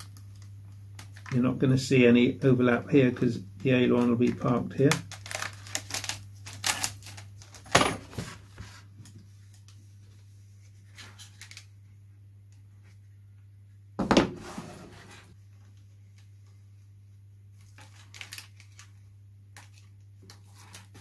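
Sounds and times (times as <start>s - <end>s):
plastic film crinkling: 0.0s - 1.4s, 3.6s - 7.7s, 10.8s - 11.7s, 17.5s - 21.0s.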